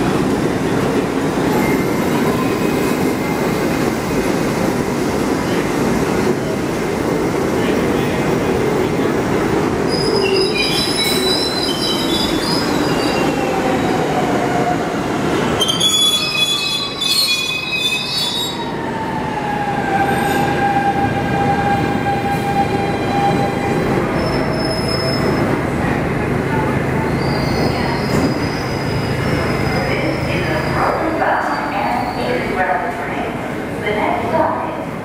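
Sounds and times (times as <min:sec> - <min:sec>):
running train noise: 0:00.0 - 0:35.0
train wheels squealing: 0:09.9 - 0:13.4, 0:15.6 - 0:18.8, 0:22.1 - 0:25.5, 0:27.1 - 0:32.4.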